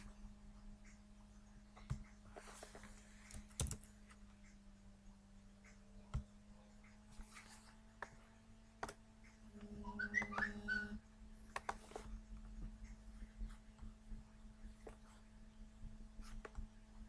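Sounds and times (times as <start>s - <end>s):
faint steady hum: 0.0s - 17.0s
high chirping whistles: 9.6s - 11.0s
mouse clicks: 11.5s - 12.1s.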